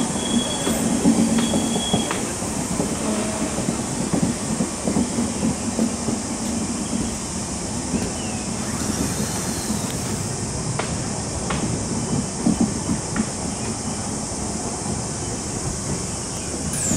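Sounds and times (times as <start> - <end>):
train wheels rumbling on rails: 0.0 - 16.9
wheels clattering: 15.9 - 16.9.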